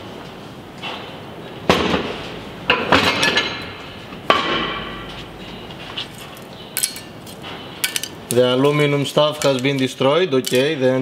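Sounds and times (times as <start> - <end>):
steel plate clanking: 2.7 - 5.2, 6.2 - 8.4.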